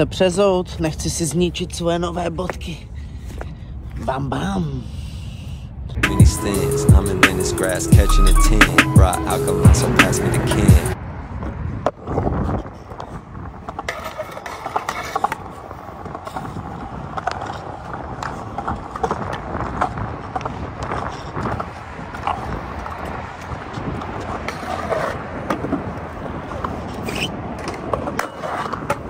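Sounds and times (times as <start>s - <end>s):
scooter wheels rolling on pavement: 5.9s - 8.0s, 8.6s - 29.0s
scooter deck clacks and scrapes: 11.4s - 29.0s.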